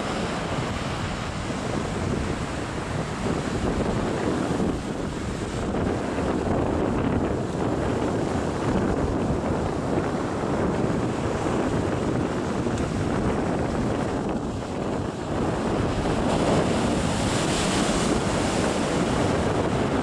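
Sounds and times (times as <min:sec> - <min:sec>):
ocean surf breaking on shore: 0:00.0 - 0:20.0
wind buffeting microphone: 0:00.0 - 0:20.0.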